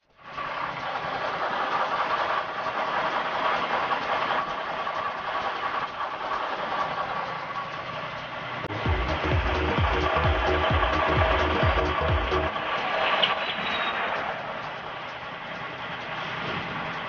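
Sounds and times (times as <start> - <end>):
diesel truck engine idling: 0.0 - 17.0
thin steady whine: 0.1 - 16.0.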